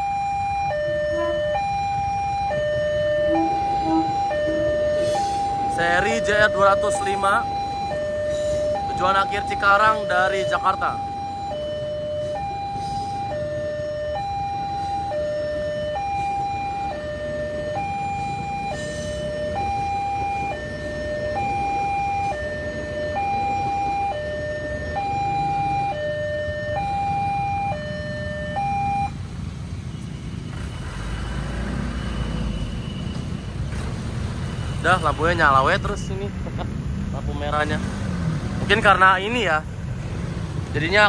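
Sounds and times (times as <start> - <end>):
electric train rumbling past: 0.9 - 7.0.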